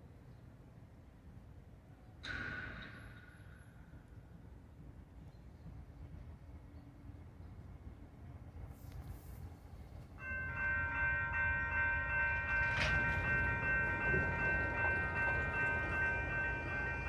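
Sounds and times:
railroad crossing bell ringing: 10.2 - 17.0.

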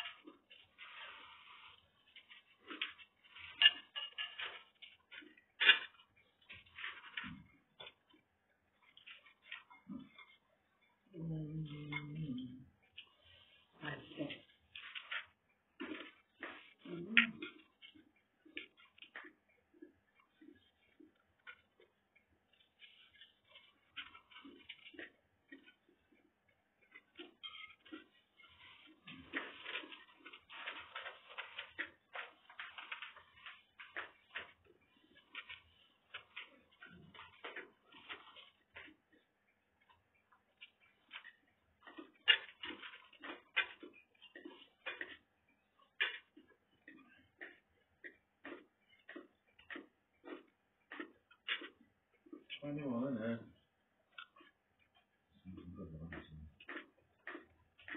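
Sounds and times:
person chewing with mouth smacks: 14.5 - 52.6, 54.0 - 57.9.

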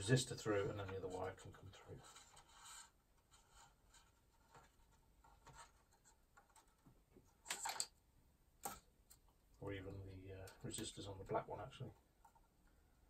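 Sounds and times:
wires scratching and rustling: 0.0 - 8.0.

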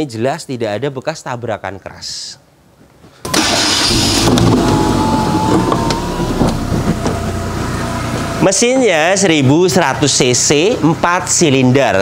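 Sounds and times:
car engine running: 3.3 - 8.8.

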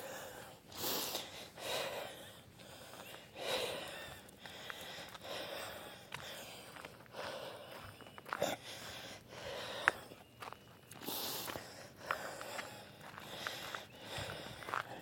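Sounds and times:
heavy breathing: 0.0 - 10.2, 11.0 - 15.0
footsteps on gravel: 3.9 - 15.0.

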